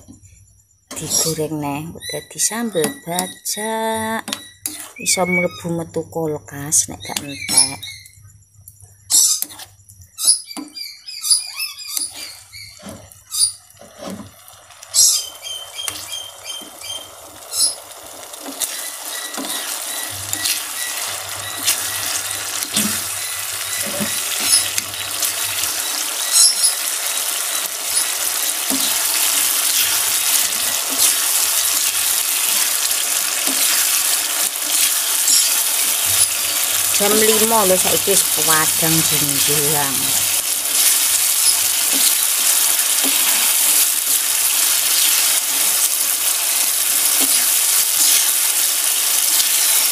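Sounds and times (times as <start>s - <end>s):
chili paste sizzling in oil: 0.6s - 5.8s, 6.7s - 8.5s, 9.1s - 49.9s
metal spoon scraping pan: 4.2s - 5.5s.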